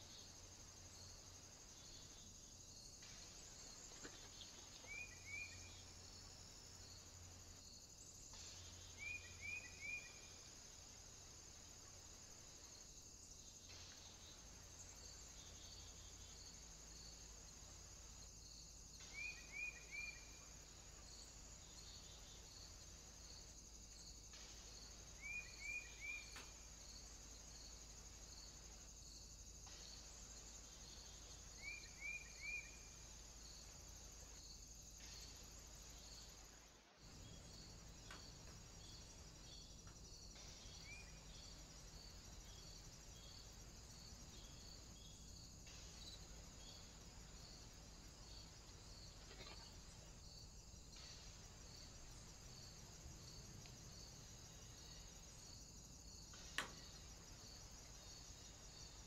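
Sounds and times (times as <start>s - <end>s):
insects trilling: 0.0s - 59.0s.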